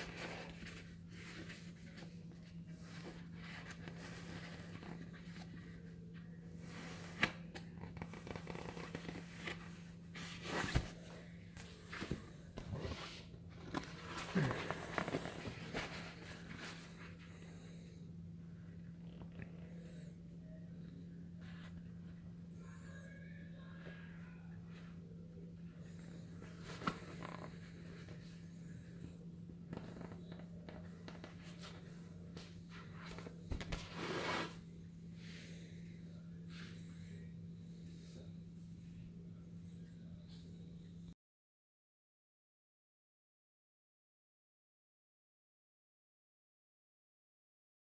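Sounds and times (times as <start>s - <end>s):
rubbing and crinkling vinyl ball: 0.0s - 17.2s, 25.6s - 34.8s
steady low hum: 0.0s - 41.2s.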